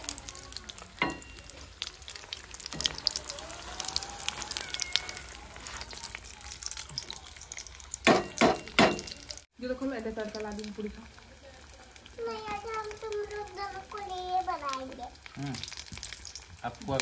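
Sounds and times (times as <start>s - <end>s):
patties deep-frying in oil: 0.0s - 17.0s
slotted spoon knocking pan: 8.0s - 9.2s.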